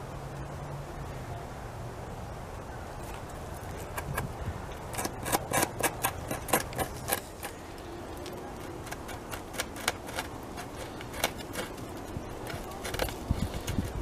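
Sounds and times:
beaver gnawing wood: 3.0s - 14.0s.

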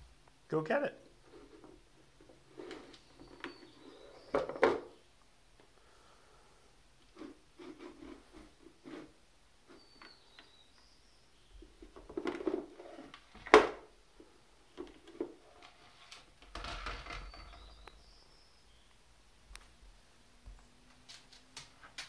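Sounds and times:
plastic bowl clattering: 1.3s - 5.0s, 11.6s - 13.9s
bowl scraping slide on floor: 2.4s - 4.3s, 7.1s - 10.0s
plastic bowl knocking on wooden floor: 4.3s - 4.9s.

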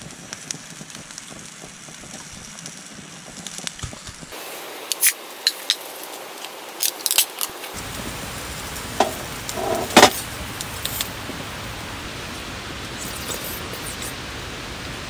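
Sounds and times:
can cracking open and fizzing: 3.4s - 8.0s.

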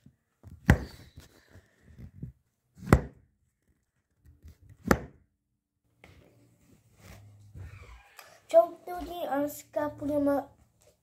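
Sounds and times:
sharp thumps: 2.1s - 3.3s, 4.7s - 5.3s.

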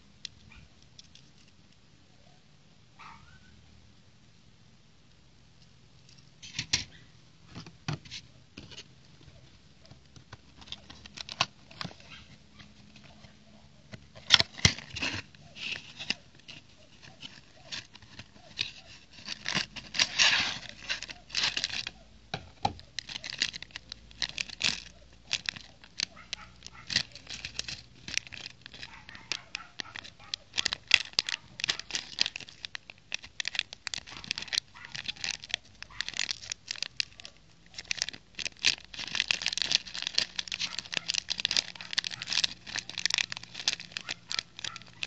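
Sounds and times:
plastic bag crinkling: 8.0s - 13.4s, 14.1s - 45.0s
cardboard box crackling and scraping: 14.1s - 21.9s.

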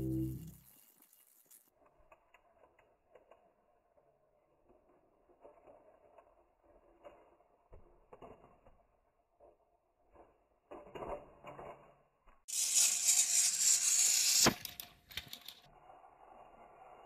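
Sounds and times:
plastic toy track clatter: 0.5s - 8.5s, 12.5s - 15.7s
high whir of toy train motors: 12.5s - 17.0s
small plastic clicks: 14.4s - 15.6s.

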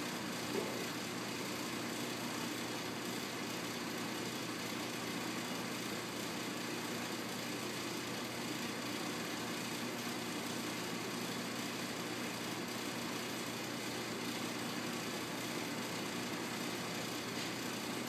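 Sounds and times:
mechanical hum: 0.0s - 18.0s.

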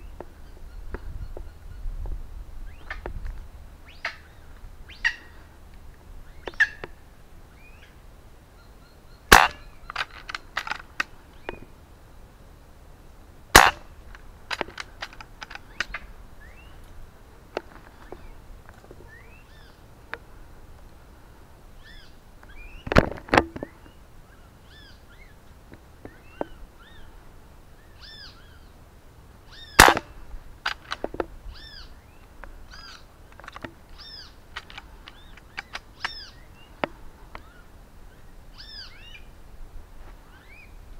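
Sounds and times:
birds chirping: 0.0s - 40.9s
air rifle shots: 9.3s - 11.0s, 13.5s - 16.0s, 29.8s - 31.1s.

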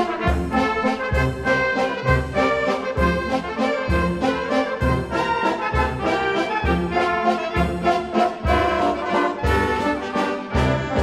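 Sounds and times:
brass band playing a waltz: 0.0s - 11.0s.

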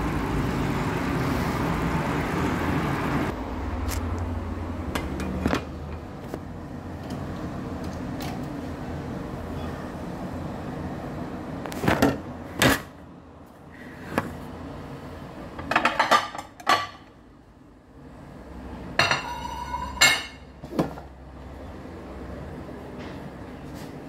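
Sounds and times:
kitchenware clattering: 15.6s - 17.1s, 19.0s - 21.0s
ringing metal scrape: 19.2s - 20.4s.

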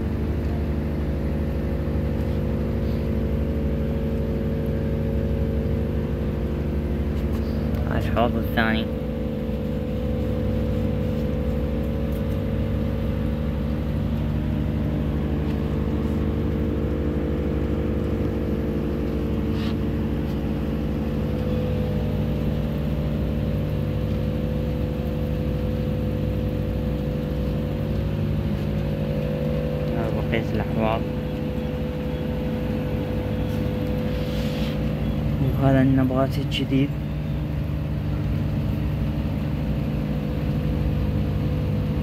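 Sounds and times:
motor humming: 0.0s - 42.0s.

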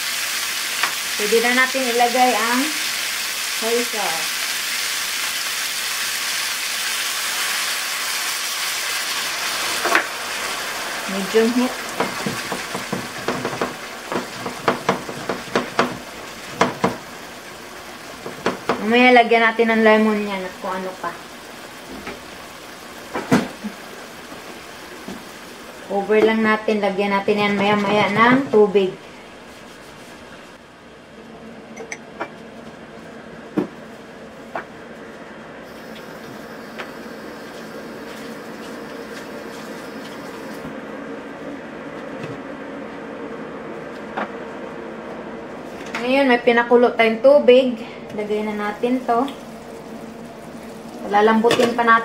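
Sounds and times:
meat sizzling in hot oil: 0.0s - 25.9s, 35.7s - 40.7s, 48.5s - 52.0s
low hum: 19.5s - 51.8s.

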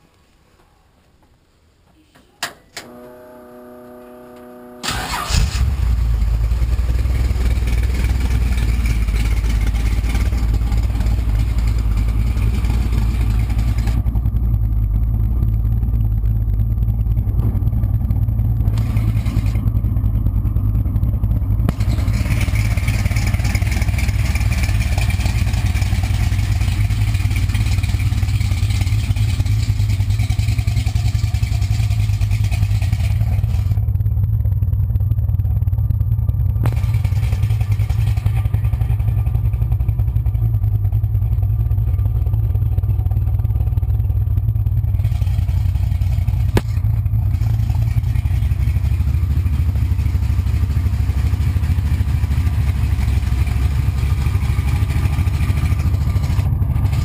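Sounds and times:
starter clicks and whir: 2.4s - 34.0s, 52.2s - 57.0s
car engine idling loudly: 3.0s - 57.0s.

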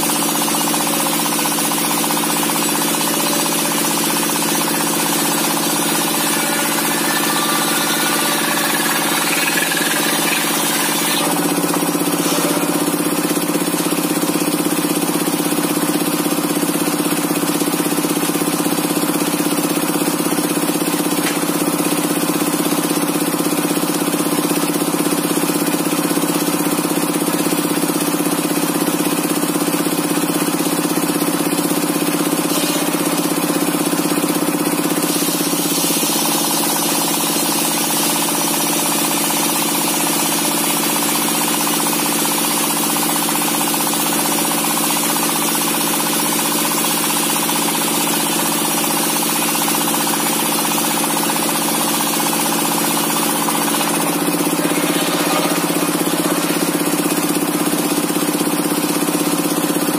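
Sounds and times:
circular saw blade spinning: 0.1s - 14.5s, 50.7s - 58.8s.

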